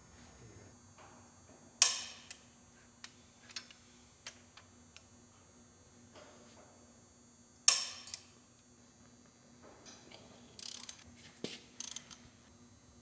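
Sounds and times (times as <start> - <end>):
socket ratchet clicking: 10.6 - 11.0, 11.8 - 12.2.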